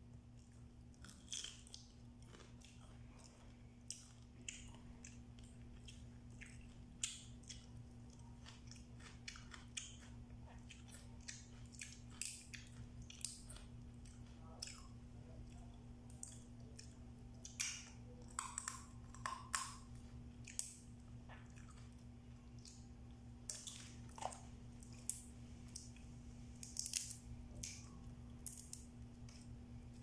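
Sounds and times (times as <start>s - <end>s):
steady low hum: 0.0s - 30.0s
chewing: 0.3s - 27.0s
crab shell cracking: 17.5s - 19.9s, 26.6s - 29.6s.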